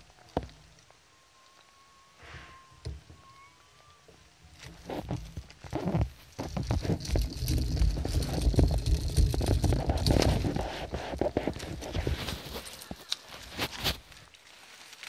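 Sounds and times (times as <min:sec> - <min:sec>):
rubbing against microphone: 0:04.6 - 0:14.2
low rumbling thumps: 0:04.7 - 0:12.0.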